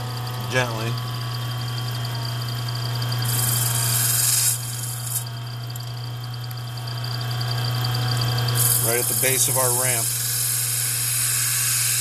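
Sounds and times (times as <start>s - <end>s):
lathe motor hum: 0.0s - 12.0s
tool scraping: 8.6s - 12.0s.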